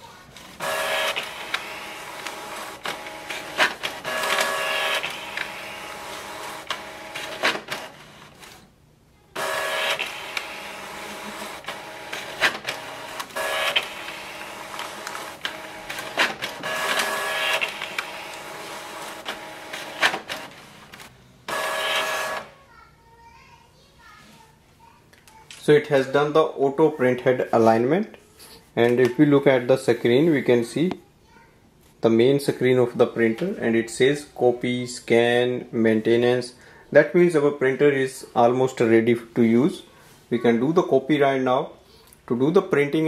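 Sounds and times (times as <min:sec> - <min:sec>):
printer carriage whirring: 0:00.3 - 0:08.7, 0:09.4 - 0:22.6
printer sharp clicks: 0:00.6 - 0:08.1, 0:09.4 - 0:22.5.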